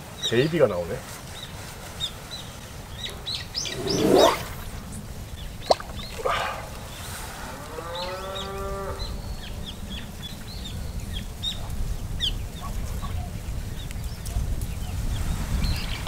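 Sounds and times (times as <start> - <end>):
small birds chirping: 1.3 - 7.1
wind rumbling on microphone: 1.4 - 7.7, 8.9 - 16.0
drawn-out rising bird call: 3.1 - 4.8.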